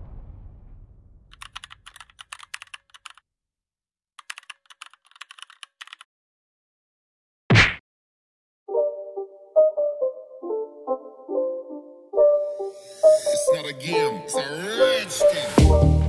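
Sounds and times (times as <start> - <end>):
loud transition hit: 0.0 - 1.3
keyboard typing clicks: 1.3 - 3.2, 4.2 - 6.1.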